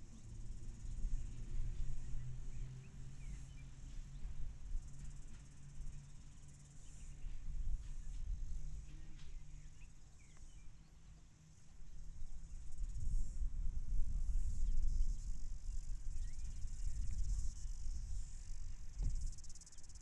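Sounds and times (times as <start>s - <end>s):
insect chorus shrilling: 14.2s - 20.0s.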